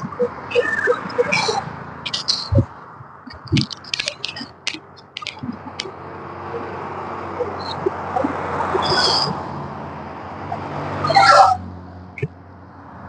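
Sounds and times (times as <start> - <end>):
sharp clicks: 2.1 - 6.0
car passing by: 5.5 - 13.0.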